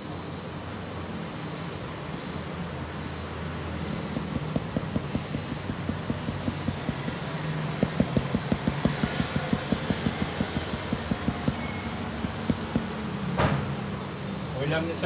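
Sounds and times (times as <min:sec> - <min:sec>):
steady low hum: 0:01.0 - 0:14.5
pen tapping on paper: 0:04.1 - 0:13.0.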